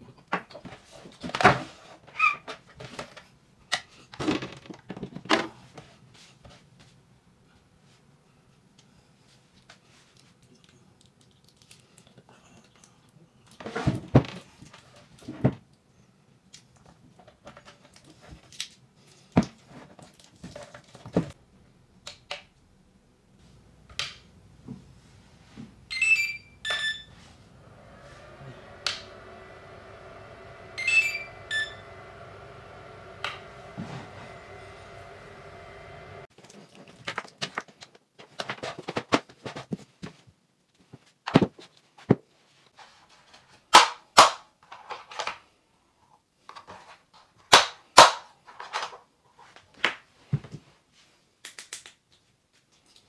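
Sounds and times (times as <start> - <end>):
steady low hum: 26.7 - 36.3
charger short high beeps: 30.8 - 31.8.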